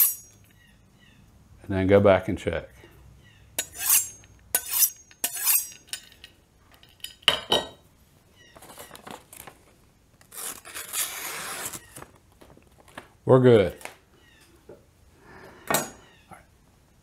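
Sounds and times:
knife scraping on honing steel: 0.0 - 0.4, 3.6 - 6.3
paper rustle: 8.6 - 13.1.

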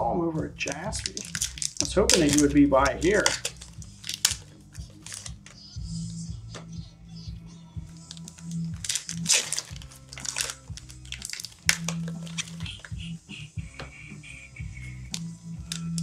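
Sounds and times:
background music with bass: 0.0 - 16.0
foil wrappers rustling and tearing: 0.6 - 5.7, 7.9 - 13.0.

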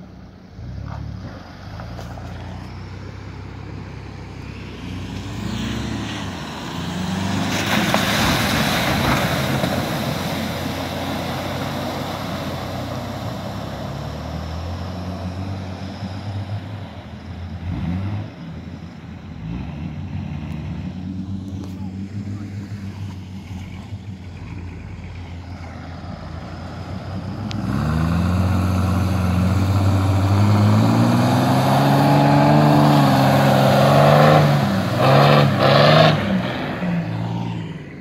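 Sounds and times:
engines revving: 0.0 - 38.0
splashing water and mud: 5.8 - 14.3.

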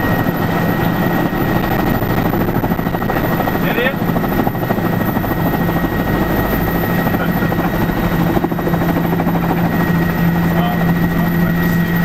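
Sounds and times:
helicopter engine and rotor drone: 0.0 - 12.0.

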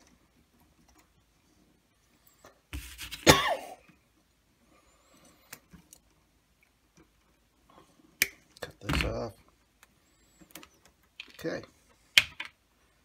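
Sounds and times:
loud cough: 3.2 - 3.8.

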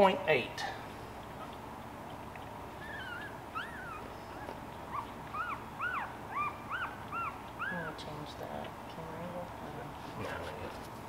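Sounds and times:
puppy whimpering: 1.3 - 1.6, 2.4 - 8.1.

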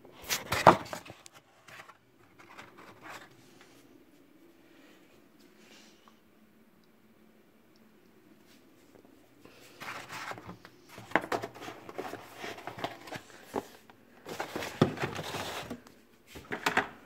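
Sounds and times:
cardboard rustling: 0.2 - 3.4, 9.8 - 15.8.

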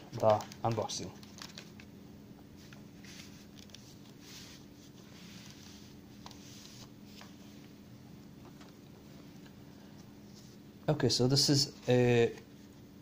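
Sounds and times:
paper rustling and sliding: 2.6 - 7.8.

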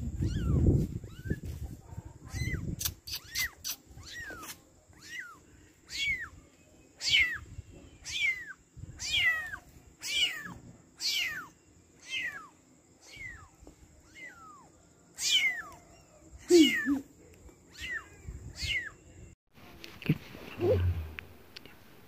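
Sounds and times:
kitten mewing: 2.3 - 6.2, 16.5 - 17.1.

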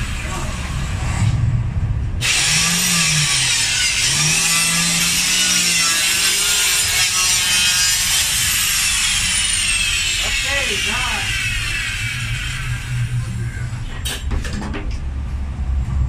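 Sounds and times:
electric saw cutting plywood: 2.2 - 13.4.

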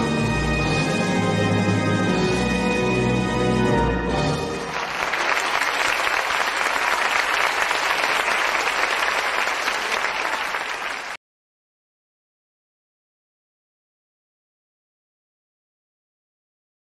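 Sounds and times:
music: 0.0 - 5.8
audience applauding: 4.5 - 11.2.

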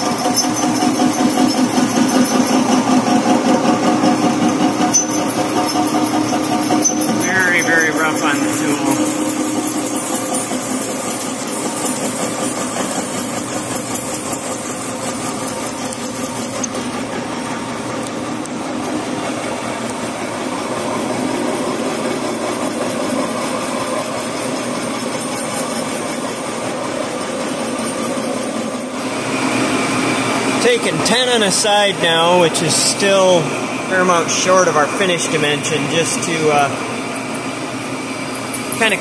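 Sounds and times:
boring bar cutting metal: 0.0 - 20.0.

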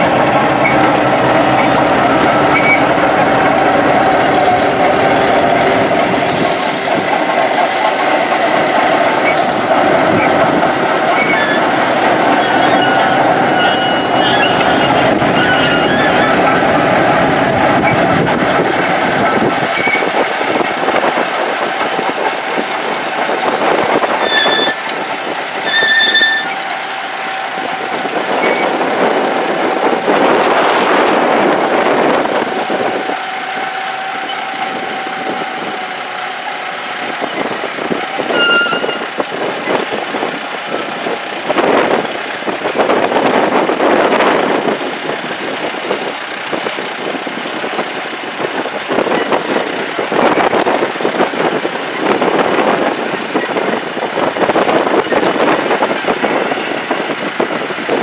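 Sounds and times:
high thin whine: 0.0 - 20.1
bulldozer engine and tracks: 0.0 - 58.0.

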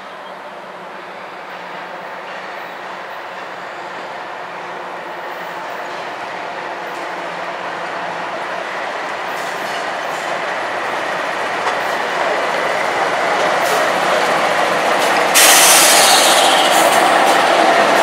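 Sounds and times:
freight locomotive engines: 0.0 - 18.0
locomotive hiss: 9.1 - 18.0.

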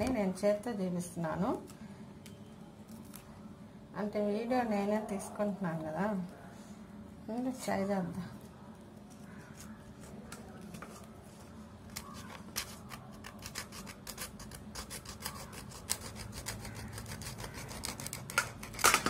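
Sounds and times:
knife scraping dried fish: 11.9 - 19.0.

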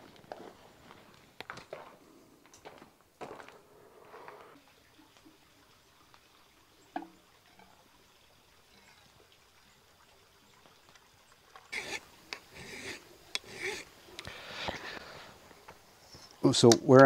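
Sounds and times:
liquid trickling into a cup: 4.6 - 13.3
rasping hand-scraping strokes: 11.7 - 13.9.

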